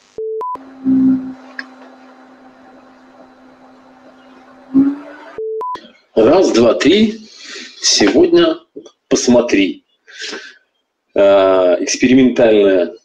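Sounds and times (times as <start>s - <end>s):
electronic two-tone beep: 0.2s - 1.3s
low-pitched hum: 0.5s - 5.6s.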